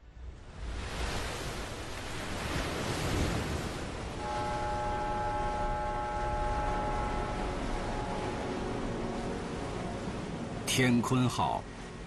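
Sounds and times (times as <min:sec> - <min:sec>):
rushing sea and wind: 0:00.0 - 0:12.0
held musical chord: 0:04.2 - 0:11.8.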